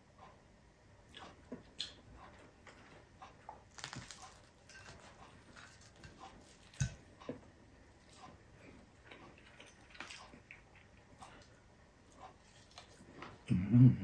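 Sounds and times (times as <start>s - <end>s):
crispy fried fish crunching: 3.7s - 7.0s.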